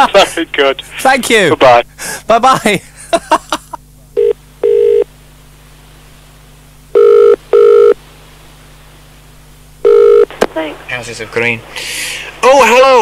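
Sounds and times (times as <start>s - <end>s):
telephone ringing tone: 4.2s - 5.1s, 6.9s - 8.0s, 9.8s - 10.3s.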